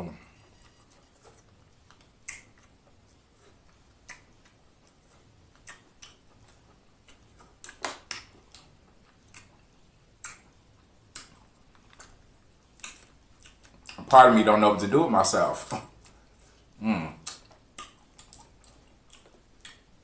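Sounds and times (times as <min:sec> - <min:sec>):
crab shell clicks and mouth smacks: 0:01.9 - 0:02.7, 0:07.4 - 0:08.7.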